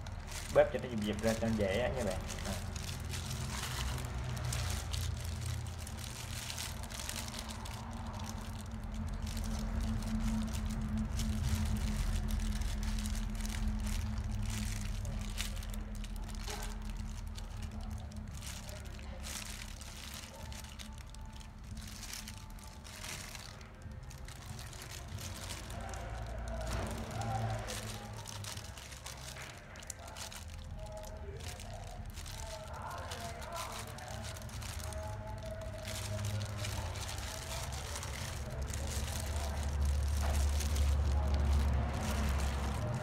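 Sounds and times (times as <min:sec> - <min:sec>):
faint music: 0:00.0 - 0:43.0
plastic glove crinkling: 0:00.0 - 0:43.0
wet squishing paste: 0:00.0 - 0:43.0.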